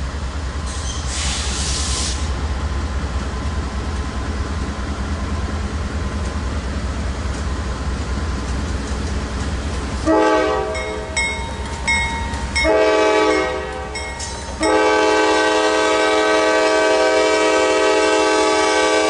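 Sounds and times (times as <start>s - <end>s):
diesel locomotive rumble: 0.0s - 19.0s
short hiss: 0.7s - 2.4s.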